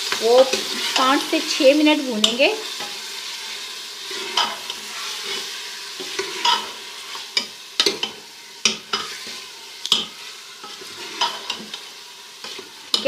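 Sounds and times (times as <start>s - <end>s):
spoon scraping a metal pot: 0.0s - 1.2s, 4.0s - 13.0s
meat sizzling in a pot: 0.0s - 13.0s.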